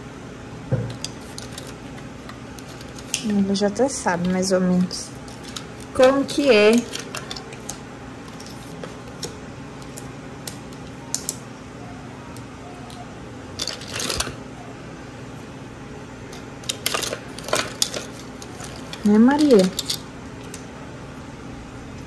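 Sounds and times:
pieces clattering: 13.6s - 14.4s, 16.7s - 20.0s.

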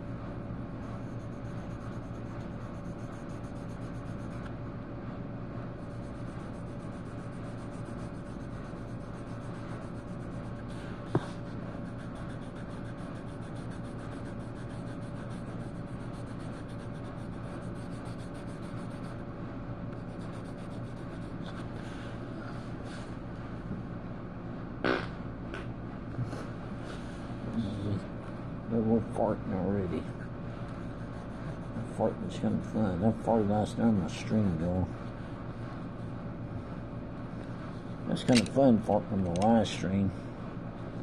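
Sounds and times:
low electrical hum: 0.0s - 41.0s
pencil rubbing on paper: 0.9s - 4.4s, 5.8s - 19.2s, 20.0s - 21.7s, 30.8s - 31.9s
sharp click: 38.3s - 38.6s.

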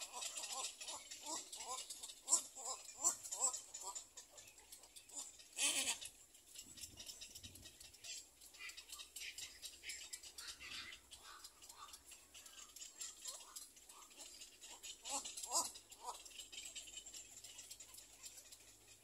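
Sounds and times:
bird chicks clicking rattle: 0.0s - 19.0s
bird chicks squeaking: 0.0s - 19.0s.

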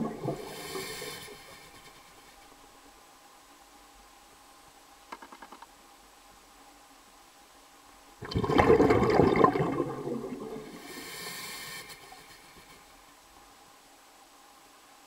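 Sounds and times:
water gushing: 0.0s - 1.7s, 8.2s - 11.4s
high hiss: 0.0s - 8.2s, 10.6s - 15.0s.

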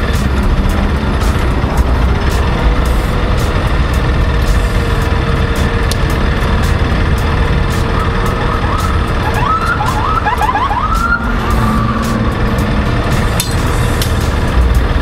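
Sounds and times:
idling engines and traffic rumble: 0.0s - 15.0s
police car siren whooping: 7.4s - 13.1s.

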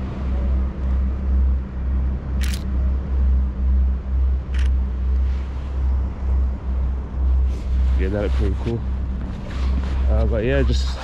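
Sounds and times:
camera shutter clicks: 2.4s - 2.7s.

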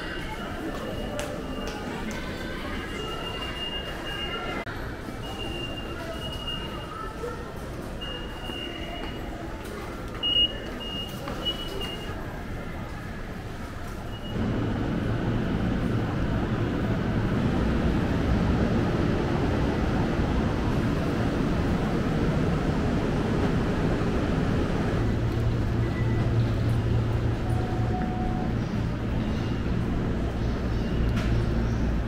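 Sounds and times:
electric train humming: 14.3s - 32.0s.

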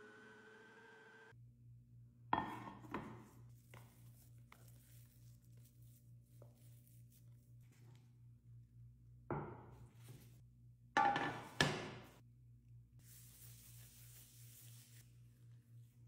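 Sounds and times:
food processor motor whining: 0.0s - 1.3s
spatula knocking and scraping: 2.4s - 4.9s, 11.0s - 12.2s.

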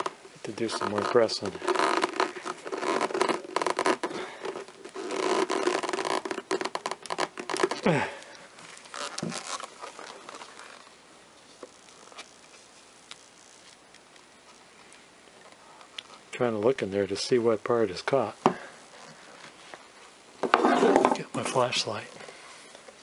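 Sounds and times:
plastic rubbing and clicking: 0.0s - 7.8s, 8.8s - 10.9s
short falling creak: 8.8s - 10.9s.

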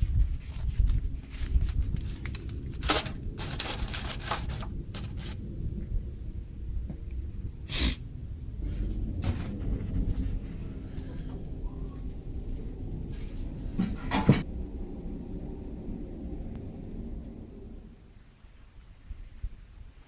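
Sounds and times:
aluminium foil crinkling: 0.0s - 5.4s
low microphone rumble: 0.0s - 19.8s.

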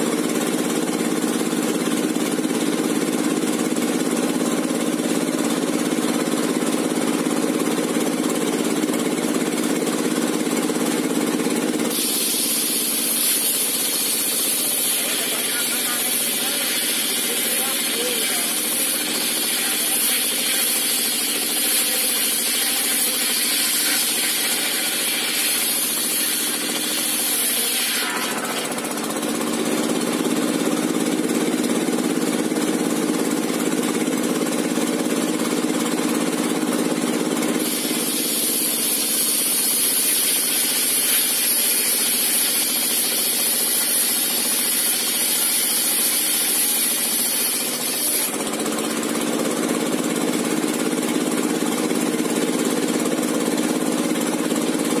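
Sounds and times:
diesel engine running: 0.0s - 13.0s, 28.4s - 39.5s, 47.7s - 55.0s
circular saw ripping timber: 11.4s - 30.2s, 37.4s - 51.0s.

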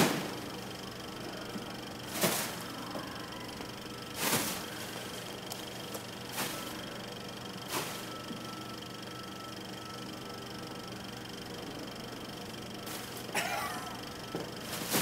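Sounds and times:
mylar pillows crinkling: 2.1s - 3.1s, 4.0s - 7.0s, 7.6s - 8.4s, 14.6s - 15.0s.

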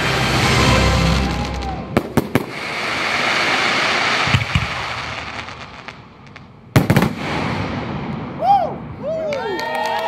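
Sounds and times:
fireworks hissing: 0.0s - 7.2s
fireworks sharp bangs: 1.3s - 8.5s.

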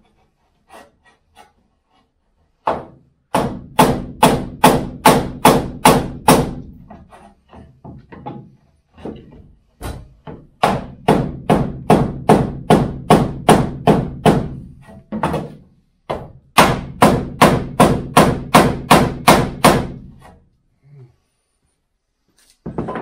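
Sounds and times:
wooden batten knocking on steel panel: 2.7s - 20.0s.

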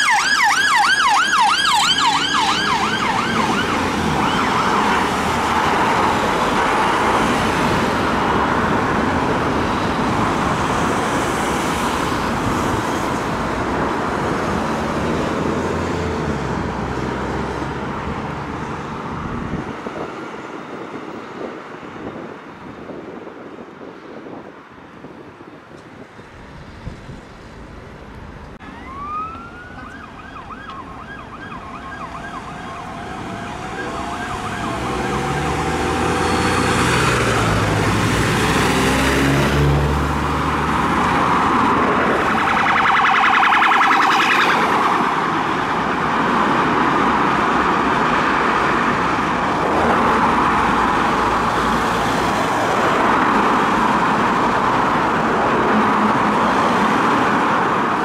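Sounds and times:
police sirens wailing and yelping: 0.0s - 16.0s, 28.6s - 39.1s, 40.1s - 58.0s
passing vehicle engines rumbling: 0.0s - 58.0s.

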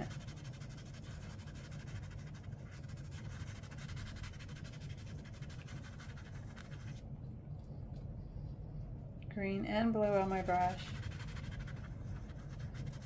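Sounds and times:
brush stroking on paper: 0.0s - 7.0s, 10.1s - 13.0s
steady low hum: 0.0s - 13.0s.

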